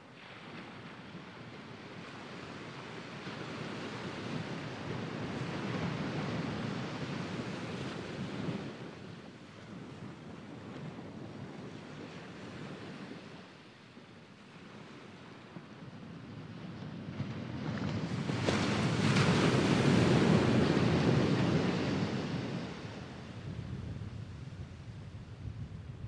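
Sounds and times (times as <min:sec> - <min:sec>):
waves washing on sandy shore: 0:00.0 - 0:26.0.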